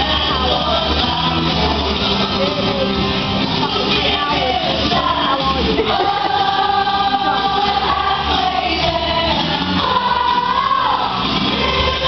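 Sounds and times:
rock music with strummed guitar: 0.0 - 12.0
person singing: 3.6 - 12.0.

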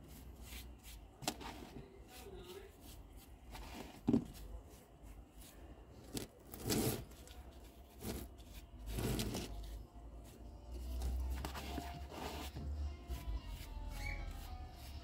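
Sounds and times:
gritty concrete scraping: 6.1 - 9.8.

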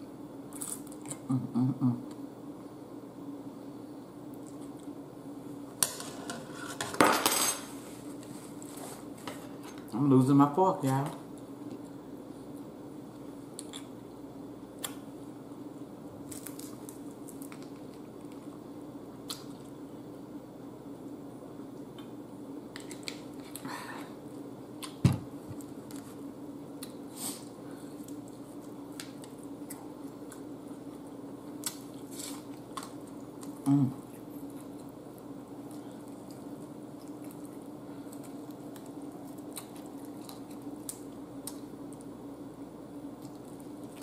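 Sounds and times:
steady low hum: 0.0 - 44.0
chewing and wet mouth noises: 13.5 - 14.1, 26.7 - 42.2, 43.1 - 44.0.

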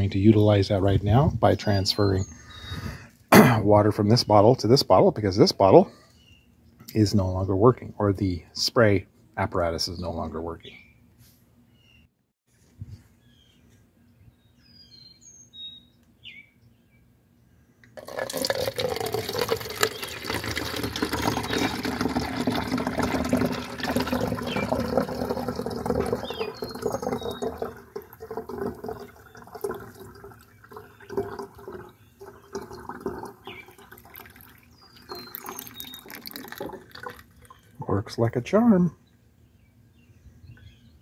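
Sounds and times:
water pouring through funnel: 18.0 - 38.2.

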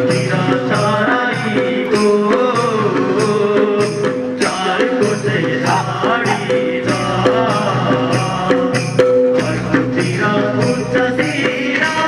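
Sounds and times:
folk dance music: 0.0 - 12.0.

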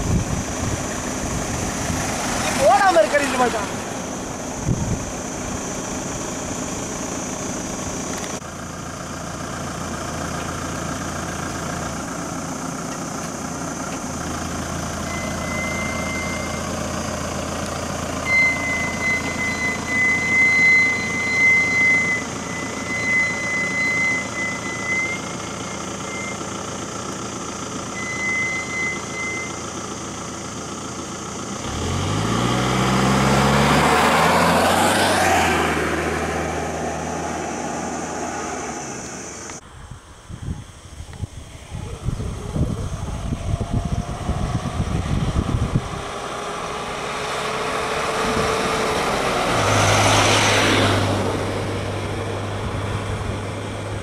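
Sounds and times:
vehicle engines idling: 0.0 - 54.0
engine speeding up: 13.5 - 39.6, 41.8 - 54.0
high steady tone: 15.0 - 26.5.

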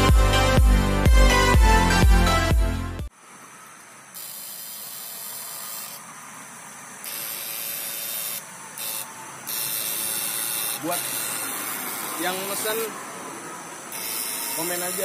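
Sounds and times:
electronic music: 0.0 - 3.1.

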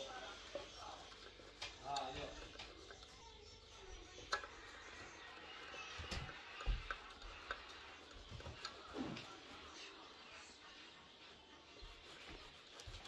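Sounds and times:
butter scraping on metal grater: 0.0 - 10.4.

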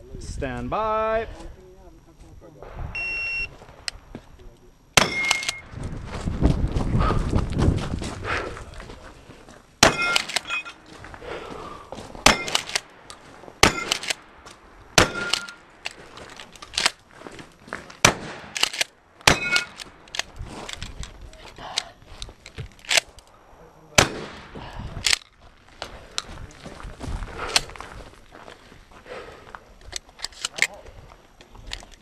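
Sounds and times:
brief ringing tone: 3.0 - 3.5
shotgun shots: 5.0 - 5.7, 9.8 - 10.5, 12.2 - 15.8, 18.0 - 20.1, 23.9 - 25.2
footsteps on gravel: 5.4 - 18.7, 19.3 - 23.2, 24.6 - 31.7.

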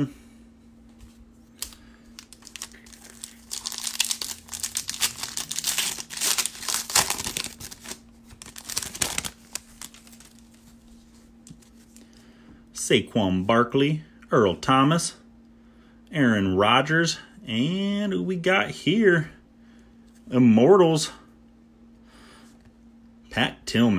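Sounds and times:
foil wrapper crinkling and tearing: 1.6 - 10.8.

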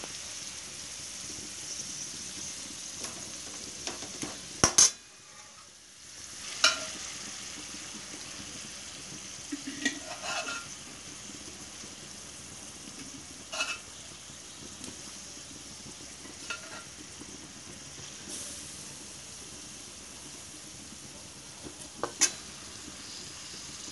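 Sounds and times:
chicken sizzling in oil: 0.0 - 23.9
metal spatula scraping pan: 4.8 - 5.8, 9.5 - 10.8, 13.5 - 13.9, 16.4 - 16.9.

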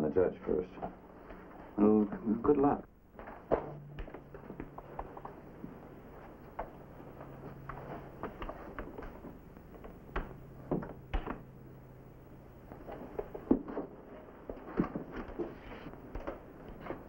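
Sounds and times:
faint low hum: 0.0 - 17.0
footsteps: 3.1 - 11.4.

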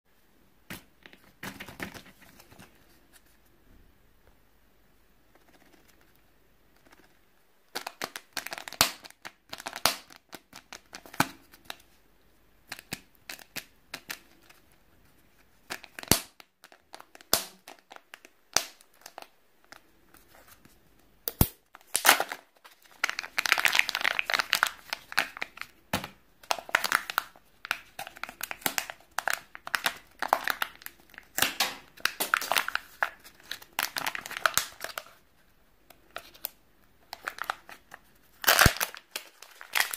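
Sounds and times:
plastic wrapper crinkling: 7.7 - 11.8, 15.6 - 20.8, 21.7 - 39.9.

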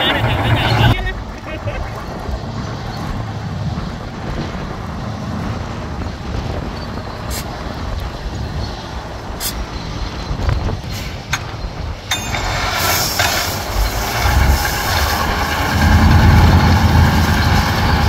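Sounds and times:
diesel machinery rumbling: 0.0 - 18.0.

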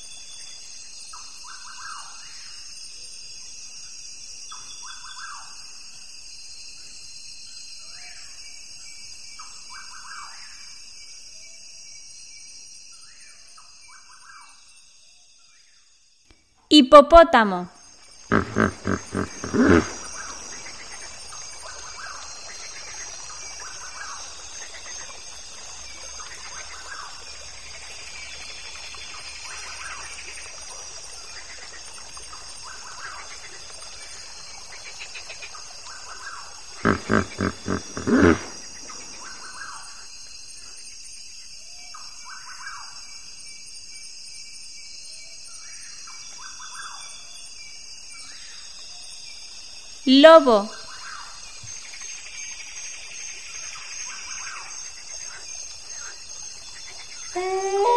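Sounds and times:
hippopotamus honking grunts: 18.3 - 20.0, 36.8 - 38.7.

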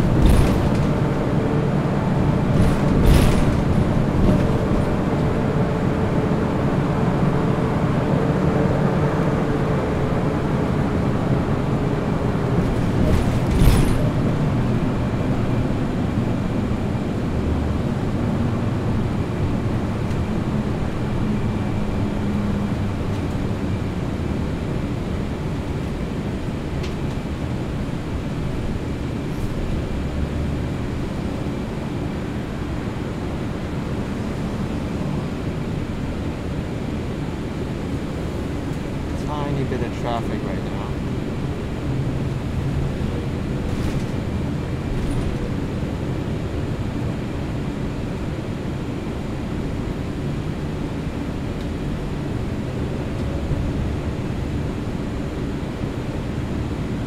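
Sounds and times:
tyre and road rumble: 0.0 - 7.1, 11.6 - 32.9
bus engine drone: 0.0 - 57.0.

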